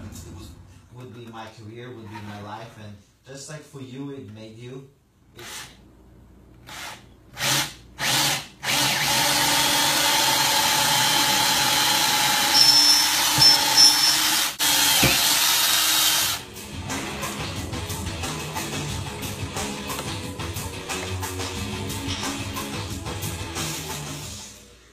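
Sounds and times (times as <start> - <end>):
power tool running: 6.7 - 16.4.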